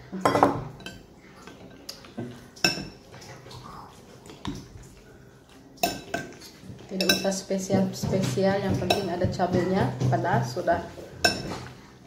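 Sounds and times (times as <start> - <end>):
cutlery clinking against bowl: 0.2 - 3.5, 5.8 - 9.8, 11.2 - 11.7.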